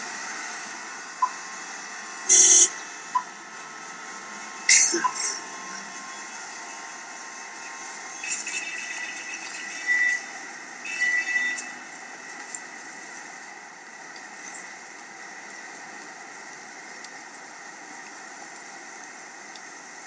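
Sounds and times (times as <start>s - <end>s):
high-pitched vehicle squeal: 1.3s - 2.8s, 3.6s - 15.7s.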